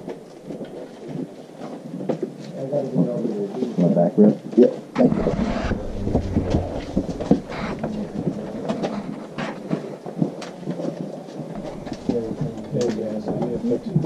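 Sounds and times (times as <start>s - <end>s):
faint voices: 2.5s - 14.0s
scraping against rock: 5.0s - 9.8s, 11.5s - 13.8s.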